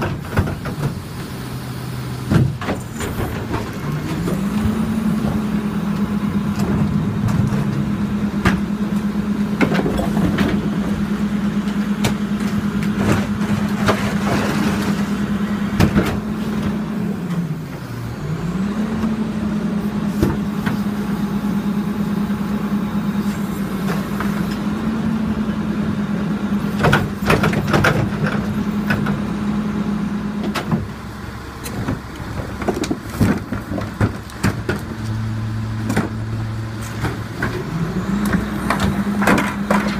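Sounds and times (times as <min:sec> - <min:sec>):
diesel truck engine revving: 0:00.0 - 0:39.9
garbage falling into hopper: 0:31.8 - 0:39.9.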